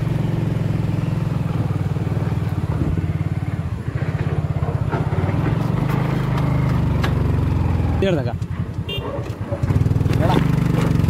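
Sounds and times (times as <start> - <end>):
motorcycle engine running: 0.0 - 11.0.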